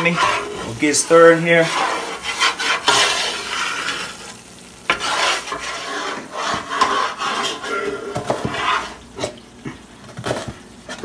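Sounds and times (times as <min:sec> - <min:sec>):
metal spoon scraping a pot: 0:00.0 - 0:04.2, 0:04.9 - 0:09.4.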